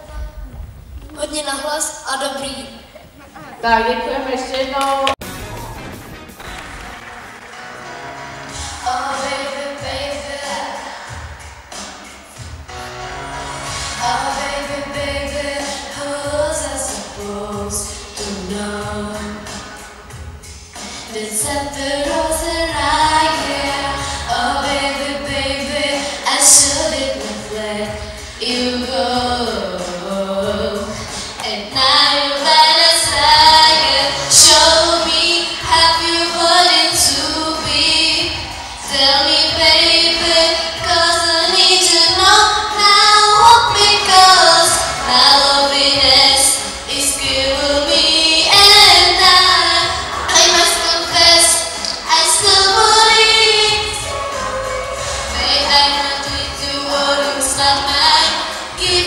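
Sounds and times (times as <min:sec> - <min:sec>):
girl singing into microphone: 0:08.8 - 0:11.3, 0:14.0 - 0:19.7, 0:21.0 - 0:59.0.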